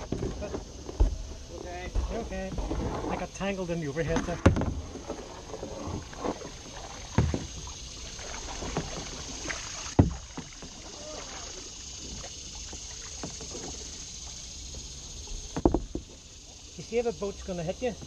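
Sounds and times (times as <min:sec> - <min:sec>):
paddle strokes in water: 0:00.0 - 0:17.0
water lapping on kayak: 0:00.0 - 0:18.0
sharp knocks: 0:09.9 - 0:10.5.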